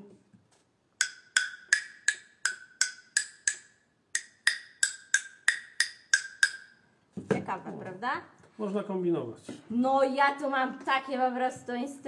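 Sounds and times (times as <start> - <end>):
wooden tone block knocks: 1.0 - 6.7.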